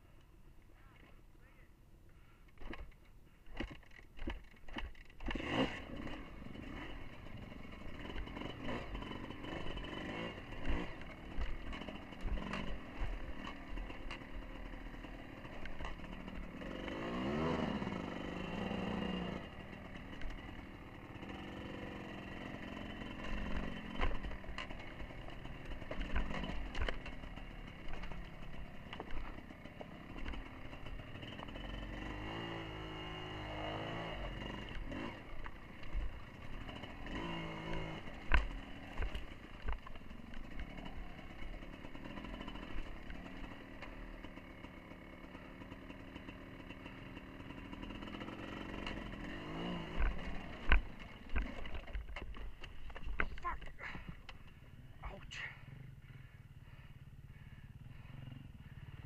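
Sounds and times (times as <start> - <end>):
motorcycle engine running: 2.7 - 59.0
knocks and clatter on rocks: 48.9 - 54.4.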